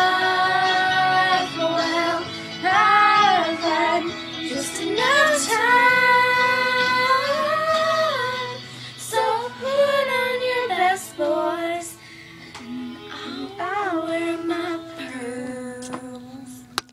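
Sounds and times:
girls singing held notes: 0.0 - 12.0
faint backing music: 0.0 - 16.9.

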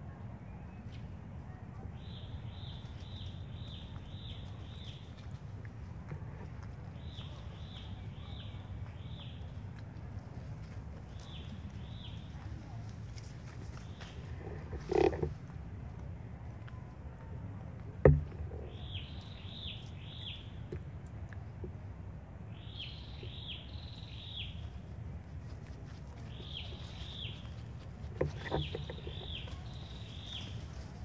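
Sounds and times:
bird calling: 26.2 - 31.0.

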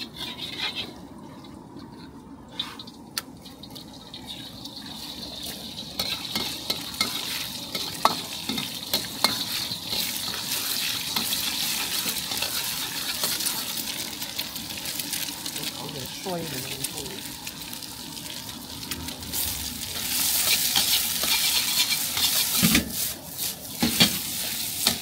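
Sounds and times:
egg sizzling in hot oil: 0.0 - 1.0, 2.6 - 25.0.

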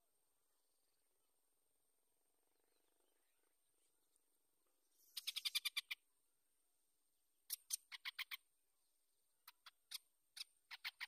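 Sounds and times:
birds chirping sharply: 4.9 - 6.0.

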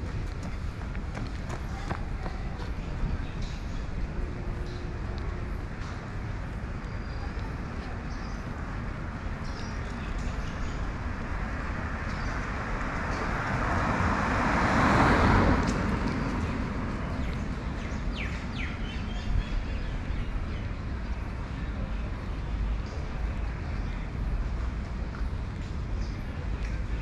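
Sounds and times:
street background noise: 0.0 - 27.0
vehicle passing by: 11.2 - 18.3.

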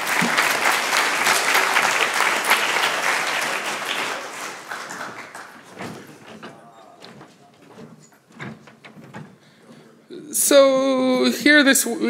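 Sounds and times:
audience applauding: 0.0 - 7.2.

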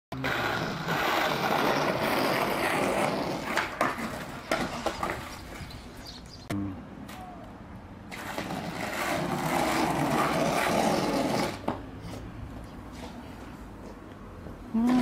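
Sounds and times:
skateboard clacks: 0.2 - 5.6
skateboard wheels rolling on asphalt: 0.2 - 6.3, 7.7 - 15.0.

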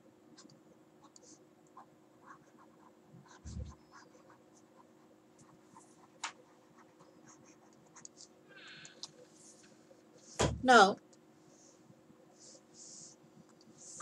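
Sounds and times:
stylus scratching on tablet screen: 0.4 - 8.3.

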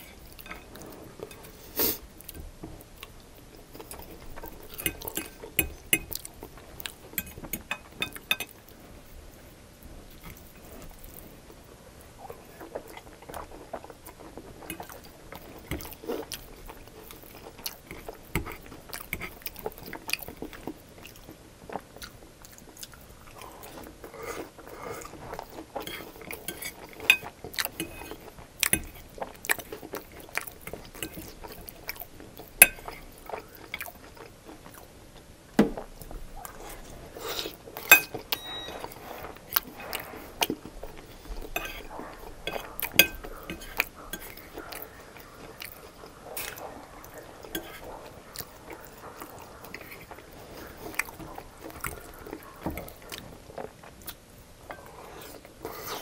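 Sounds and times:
chewing fries: 0.0 - 56.0
metal fork scraping a plate: 41.6 - 41.9.

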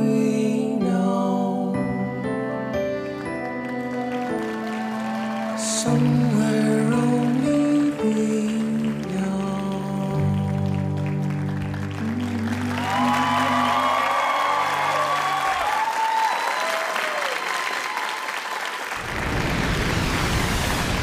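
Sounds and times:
closing music: 0.0 - 15.8
audience applauding and cheering: 2.9 - 21.0
voices whooping: 12.7 - 18.4
deep rumble: 19.0 - 21.0.

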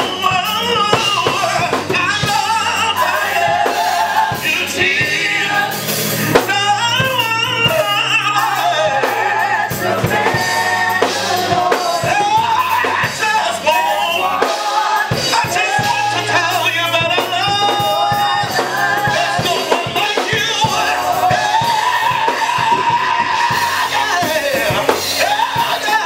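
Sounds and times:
instrumental accompaniment with drums: 0.0 - 26.0
man singing gospel into microphone: 0.0 - 26.0.

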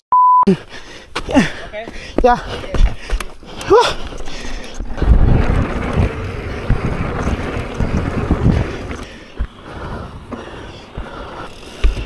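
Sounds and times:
bike tyres rolling on dirt trail: 0.8 - 12.0
bike thumping over bumps: 2.7 - 12.0
wind rushing over microphone: 4.8 - 11.1.

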